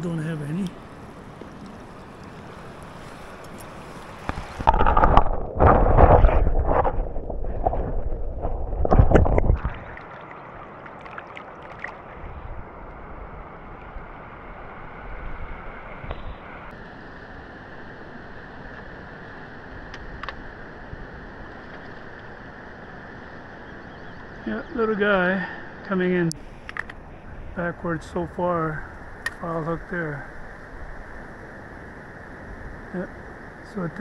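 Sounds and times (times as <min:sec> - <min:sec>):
water splashing and sloshing: 0:00.0 - 0:14.8, 0:21.2 - 0:23.6.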